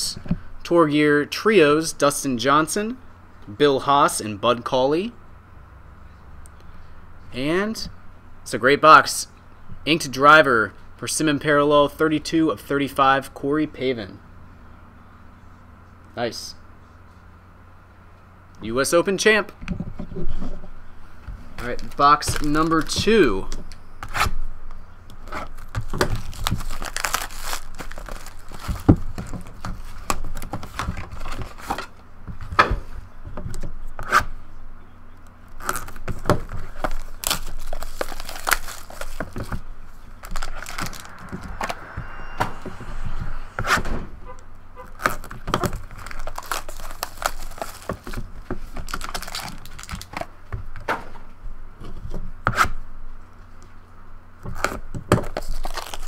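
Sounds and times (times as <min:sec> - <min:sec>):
wrappers tearing and crinkling: 0:25.6 - 0:29.6, 0:35.6 - 0:39.6, 0:40.2 - 0:41.1, 0:45.0 - 0:50.3, 0:54.6 - 0:56.0
cards rustling and clicking: 0:35.6 - 0:39.6, 0:46.0 - 0:50.3.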